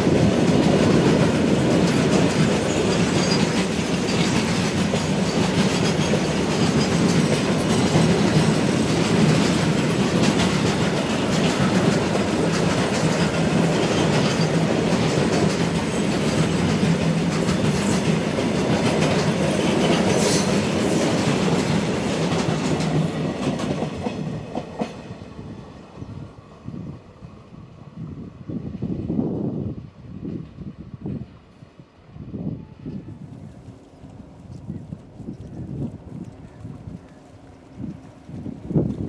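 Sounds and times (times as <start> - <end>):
freight train wheels clattering: 0.0 - 25.2.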